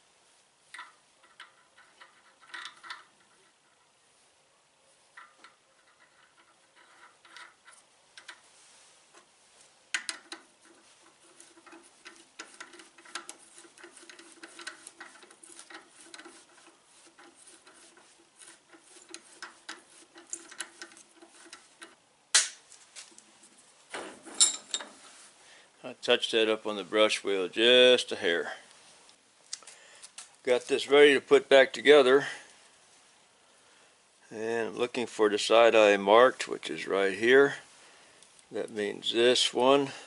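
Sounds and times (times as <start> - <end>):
threading die clicking and scraping: 0.7 - 3.5, 5.2 - 8.4, 10.0 - 22.0.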